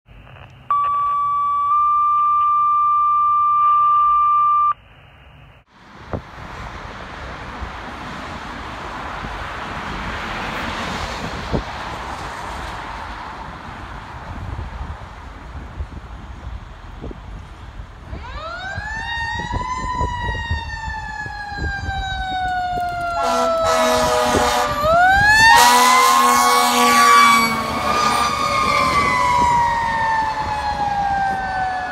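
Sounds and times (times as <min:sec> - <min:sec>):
two-tone alert over radio: 0:00.7 - 0:04.8
air horn blasting: 0:23.2 - 0:29.1.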